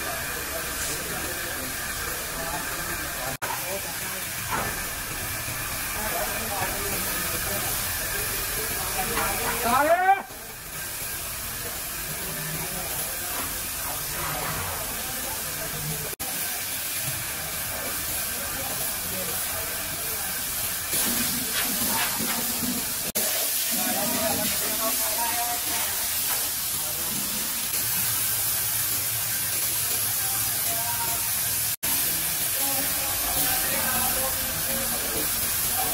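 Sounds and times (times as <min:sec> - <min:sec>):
spray gun hissing: 0:10.4 - 0:35.9.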